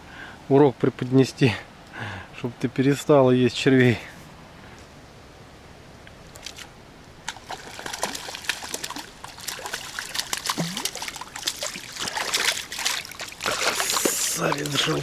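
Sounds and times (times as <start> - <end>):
water splashing and dripping: 6.4 - 15.0.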